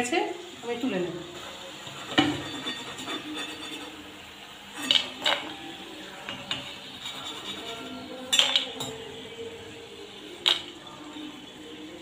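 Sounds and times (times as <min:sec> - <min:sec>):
metal skimmer scraping a pan: 0:01.8 - 0:05.5, 0:06.1 - 0:09.0.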